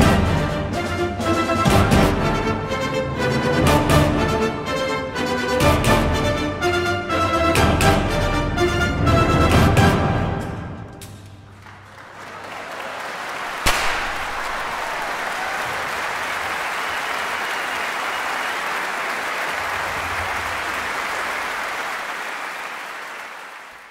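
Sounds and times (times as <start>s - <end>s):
music: 0.0s - 12.1s
crowd applause: 11.5s - 23.9s.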